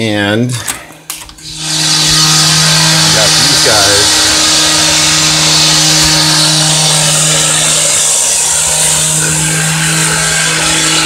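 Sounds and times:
construction machinery running: 0:01.4 - 0:11.0.

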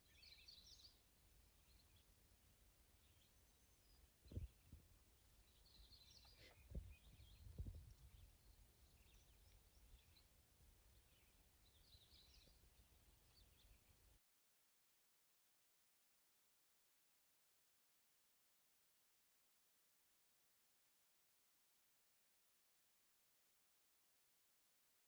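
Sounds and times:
faint bird chirps: 0:00.0 - 0:14.2.

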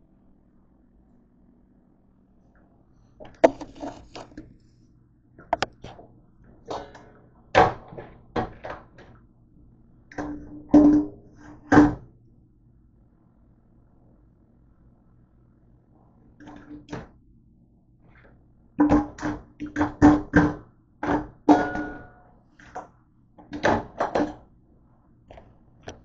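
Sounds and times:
kitchenware clattering: 0:21.5 - 0:22.2
metal bowl knocking on dish rack: 0:21.5 - 0:22.2.

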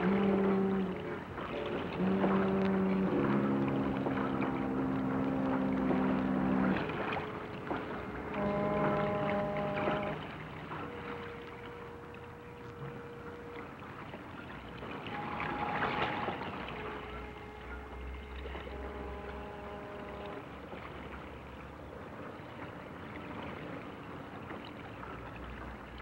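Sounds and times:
ship whistles: 0:00.0 - 0:23.9
water rushing and splashing: 0:00.0 - 0:26.0.

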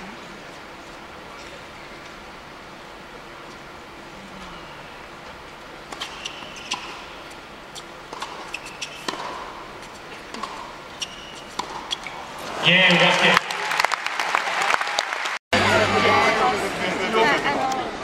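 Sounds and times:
quiet arena hush: 0:00.0 - 0:13.9
tennis ball bouncing: 0:05.5 - 0:12.2
racket striking tennis ball: 0:05.8 - 0:12.2.

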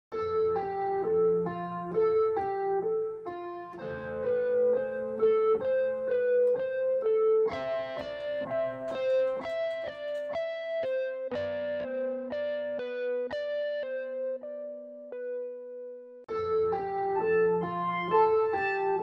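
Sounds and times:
keyboard melody over held notes: 0:00.1 - 0:19.0.

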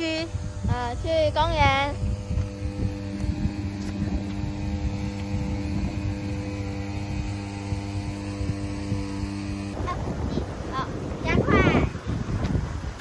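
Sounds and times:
low rumbling noise: 0:00.0 - 0:13.0
steady mechanical hum: 0:00.0 - 0:13.0.

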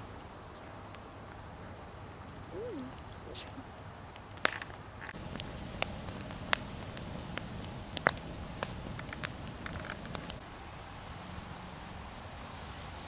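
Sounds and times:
firewood crackling and popping: 0:03.8 - 0:12.5.

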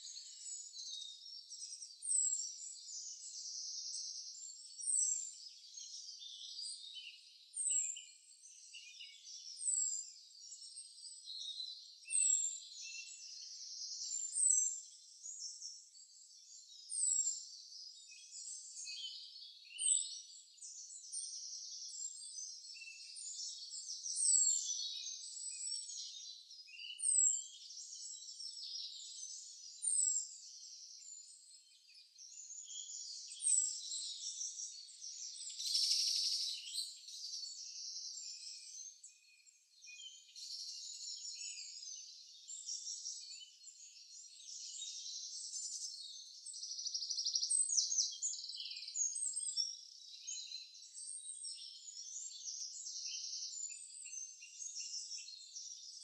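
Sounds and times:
songbirds chirping and twittering: 0:00.0 - 0:56.0.

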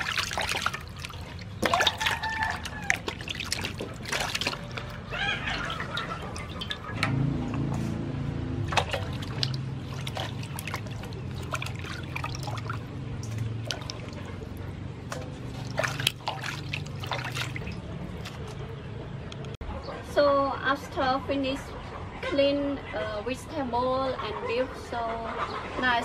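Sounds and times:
water sloshing in a steel bowl: 0:00.0 - 0:18.9
low hum: 0:05.6 - 0:19.6.

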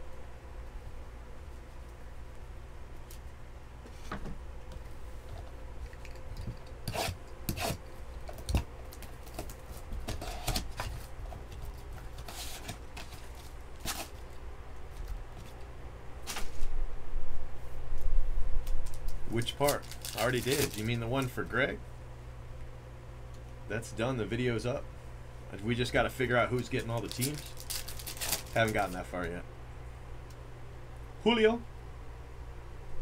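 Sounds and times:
plastic and card rustling: 0:08.2 - 0:15.6, 0:18.6 - 0:21.5, 0:26.5 - 0:29.4.

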